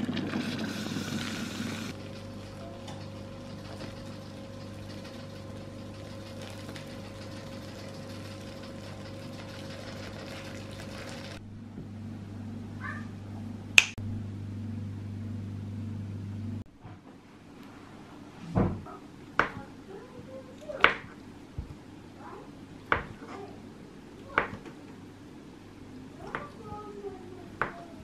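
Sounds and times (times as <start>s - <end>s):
hot water pouring into a bowl: 3.4s - 11.4s.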